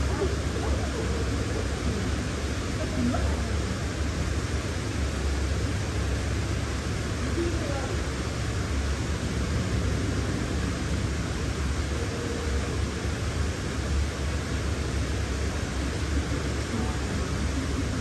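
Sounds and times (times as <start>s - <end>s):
even hiss: 0.0s - 18.0s.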